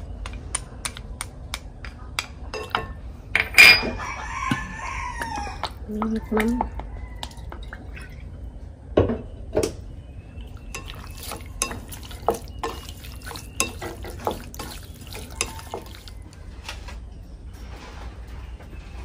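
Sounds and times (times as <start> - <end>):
chopsticks stirring meat: 10.6 - 16.4
chopsticks tapping glass bowl: 10.7 - 16.1.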